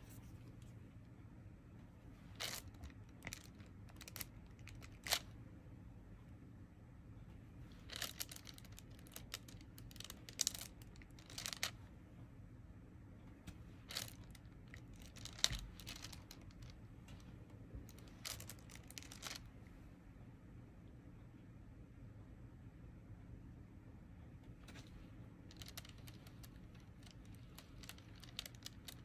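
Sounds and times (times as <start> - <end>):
crinkly rustles: 2.2 - 5.2, 7.7 - 11.8, 13.8 - 19.5, 24.7 - 29.0.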